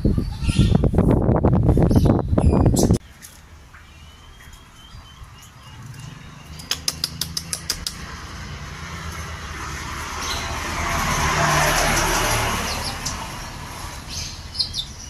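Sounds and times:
bird chirping: 0:01.8 - 0:08.1, 0:11.9 - 0:15.0
bird sharp ticks: 0:05.4 - 0:08.1.

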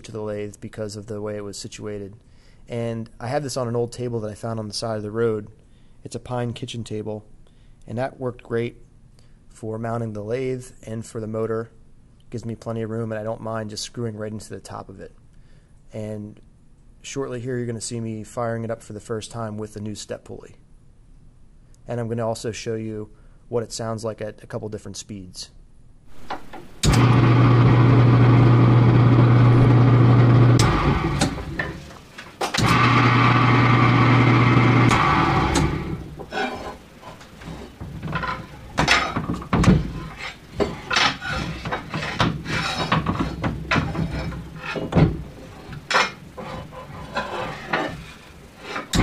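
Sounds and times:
electric motor humming: 0:26.1 - 0:49.0
knocks and clicks on belt and motor: 0:26.1 - 0:49.0.

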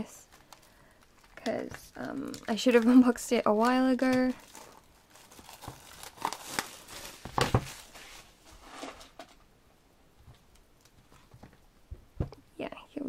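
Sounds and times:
hands handling cardboard package: 0:00.3 - 0:09.4.

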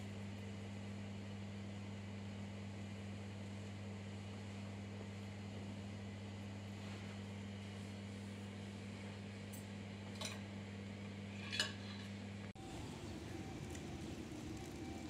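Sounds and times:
low hum: 0:12.4 - 0:15.0.

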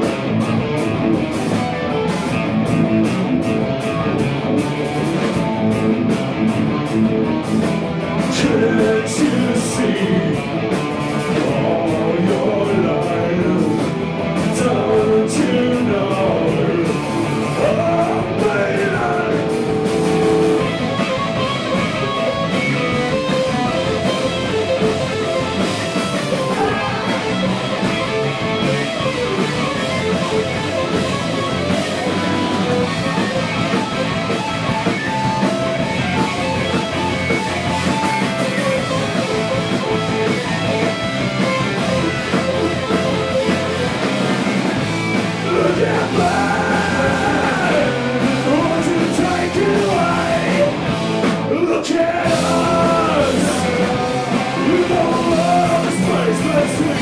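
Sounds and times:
rock band playing live: 0:00.0 - 0:57.0
male lead vocal: 0:08.2 - 0:10.6, 0:11.2 - 0:20.7, 0:26.3 - 0:28.0, 0:45.4 - 0:57.0.

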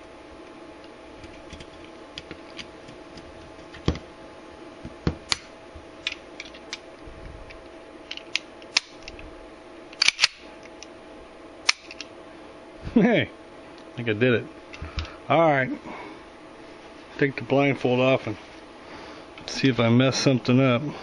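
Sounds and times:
background hum: 0:00.0 - 0:21.0
pistol parts clicking: 0:08.1 - 0:09.2, 0:10.0 - 0:10.4, 0:11.7 - 0:12.1.

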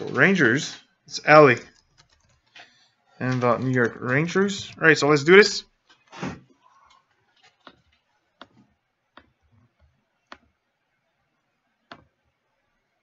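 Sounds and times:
computer mouse clicking: 0:01.6 - 0:02.7.

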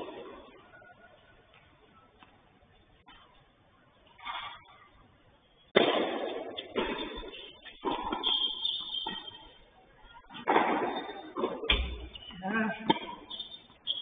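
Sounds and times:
racket hitting tennis ball: 0:05.8 - 0:09.5, 0:10.3 - 0:12.1
tennis ball bouncing: 0:05.8 - 0:09.5.

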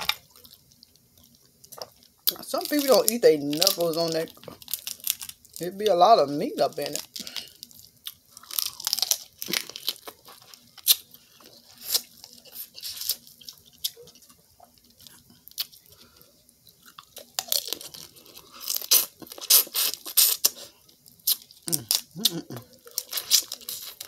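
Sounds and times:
crawfish shells cracking: 0:01.6 - 0:05.7, 0:06.8 - 0:11.1
chewing: 0:07.1 - 0:24.0.

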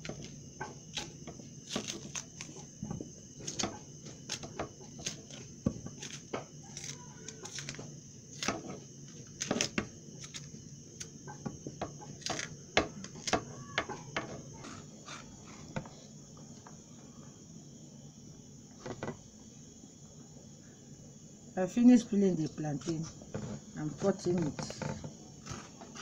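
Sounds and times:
knife scraping plantain skin: 0:00.9 - 0:02.7, 0:03.4 - 0:10.6, 0:14.6 - 0:15.8, 0:25.4 - 0:26.0.

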